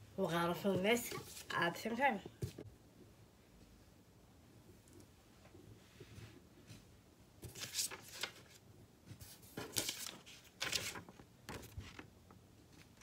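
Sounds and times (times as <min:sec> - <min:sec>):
paper rustling and crinkling: 0:07.4 - 0:12.1.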